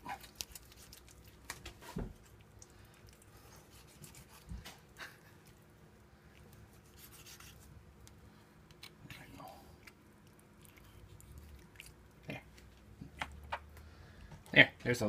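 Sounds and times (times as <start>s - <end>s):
knife scraping meat: 3.4s - 4.5s, 6.7s - 7.7s.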